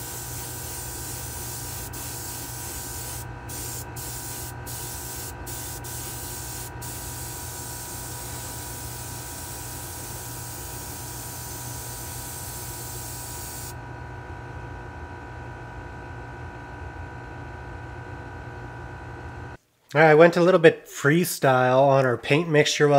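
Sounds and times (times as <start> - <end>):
airbrush spraying hiss: 0.0 - 13.7
steady low hum: 0.0 - 19.6.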